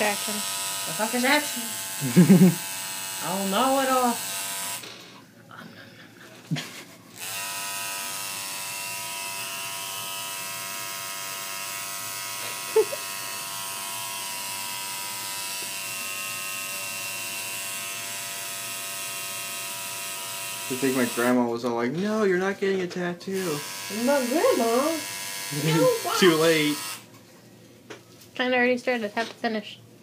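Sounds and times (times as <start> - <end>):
tattoo machine buzzing: 0.0 - 5.1, 7.1 - 21.4, 23.4 - 27.1.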